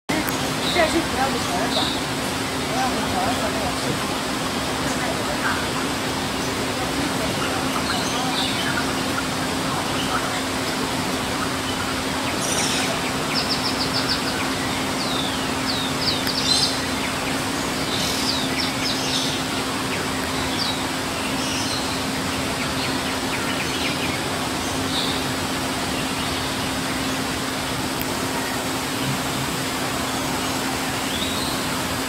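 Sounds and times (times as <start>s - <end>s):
steady low hum: 0.1s - 32.0s.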